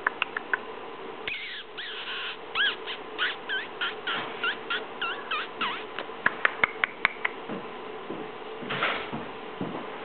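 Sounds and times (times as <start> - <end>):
puppy whining: 1.3 - 6.0.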